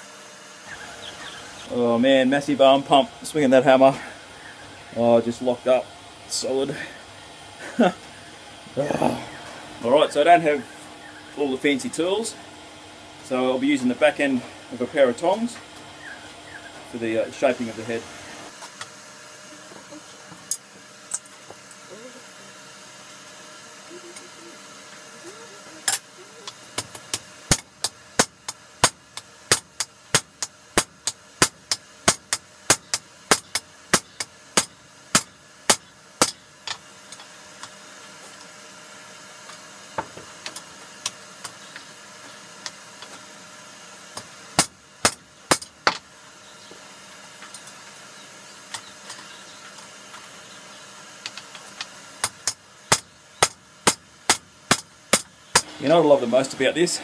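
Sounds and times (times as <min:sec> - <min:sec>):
hammer striking hot steel on anvil: 0:26.8 - 0:36.4.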